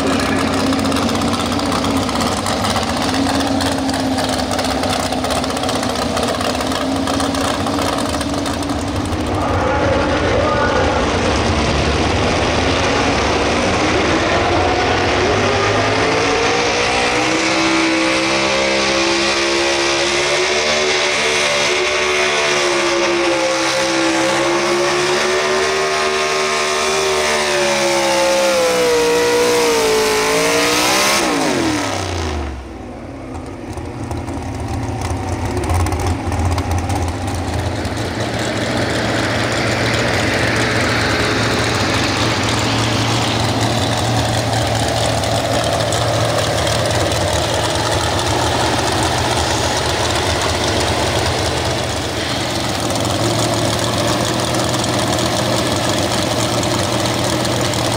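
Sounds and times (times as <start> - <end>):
truck engine idling: 0.0 - 18.0, 31.9 - 57.9
truck engine revving under load: 0.0 - 57.9.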